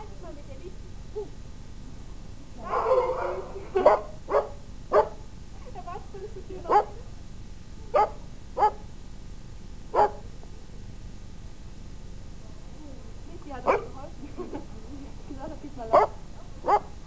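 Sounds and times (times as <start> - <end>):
puppy barking: 2.6 - 5.2, 6.7 - 7.0, 7.9 - 8.8, 10.0 - 10.2, 13.7 - 13.9, 15.9 - 17.0.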